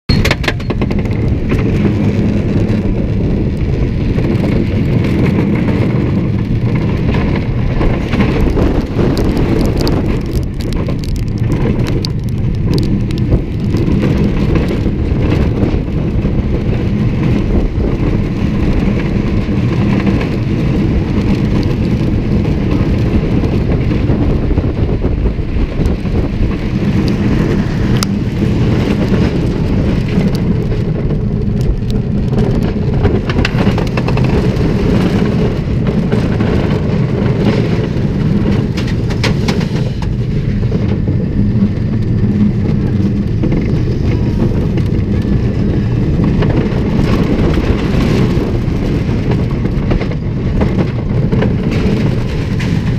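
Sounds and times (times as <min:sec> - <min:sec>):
roller coaster rumbling on track: 0:00.1 - 0:52.9.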